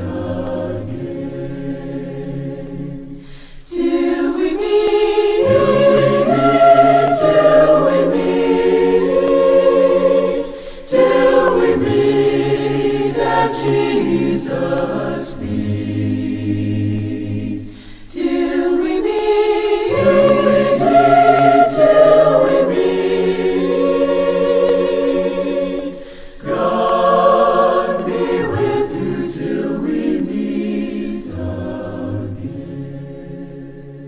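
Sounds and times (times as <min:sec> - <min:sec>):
choir singing held chords: 0:00.0 - 0:34.0.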